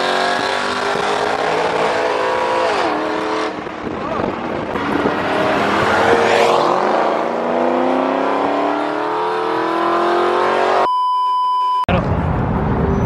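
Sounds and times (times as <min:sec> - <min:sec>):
car engine accelerating: 0:00.0 - 0:10.9
steady bleep tone: 0:10.7 - 0:11.9.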